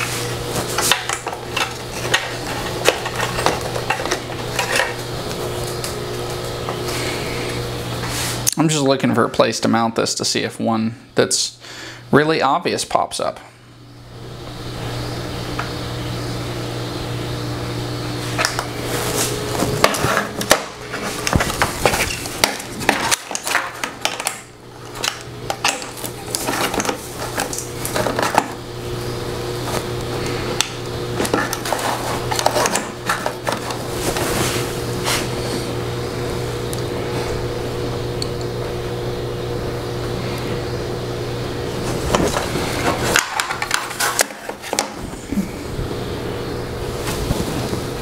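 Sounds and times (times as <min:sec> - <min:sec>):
steady low hum: 0:00.0 - 0:48.0
hard parts clicking and clattering: 0:00.7 - 0:05.0, 0:19.8 - 0:28.6, 0:31.2 - 0:34.3, 0:42.1 - 0:45.0.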